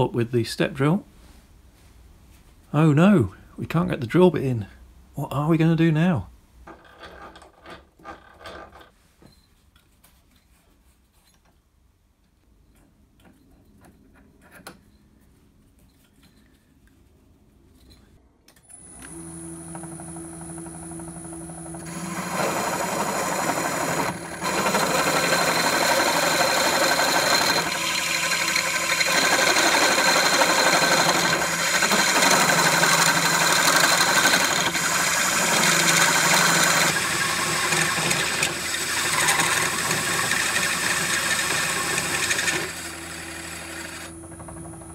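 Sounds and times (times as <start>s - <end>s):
drill press motor: 18.7s - 44.9s
step drill cutting metal: 18.8s - 44.9s.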